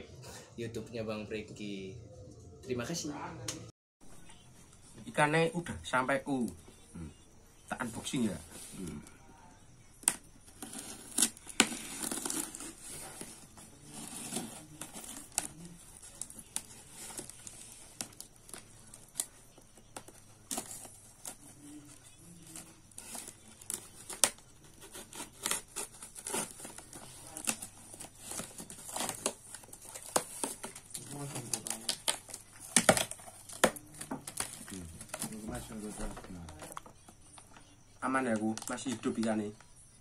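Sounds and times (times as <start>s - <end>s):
packing tape ripping: 10.0s - 35.4s.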